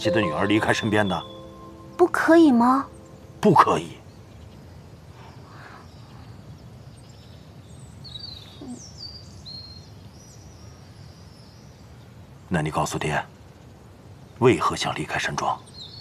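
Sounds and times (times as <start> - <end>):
birds chirping and whistling: 0.0 - 4.6
faint outdoor ambient hum: 0.0 - 16.0.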